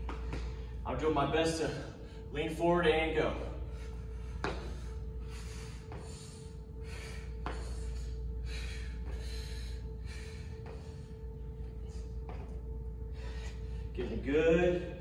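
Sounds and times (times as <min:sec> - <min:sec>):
quiet background music: 0:00.0 - 0:15.0
steady hum: 0:00.0 - 0:15.0
man breathing hard: 0:01.6 - 0:02.4, 0:03.4 - 0:14.0.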